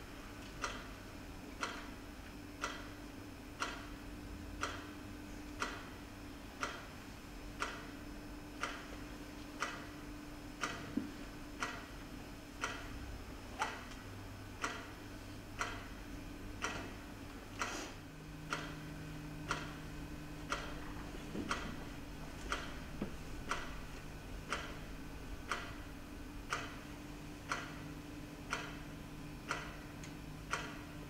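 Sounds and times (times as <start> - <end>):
clock ticking: 0.6 - 1.0, 1.6 - 1.9, 2.6 - 3.0, 3.6 - 4.0, 4.6 - 6.0, 6.6 - 6.9, 7.6 - 13.0, 14.6 - 15.0, 15.6 - 16.0, 16.6 - 17.0, 18.4 - 31.0.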